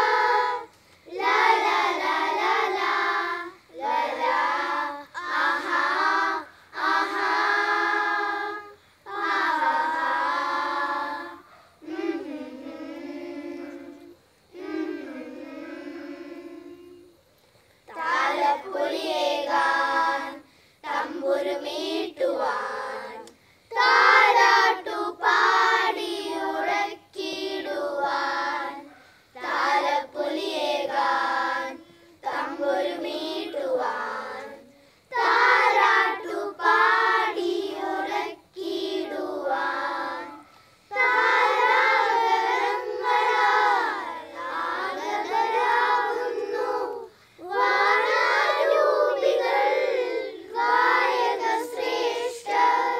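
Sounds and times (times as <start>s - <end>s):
children's choir singing a carol: 0.0s - 17.3s, 17.9s - 52.9s.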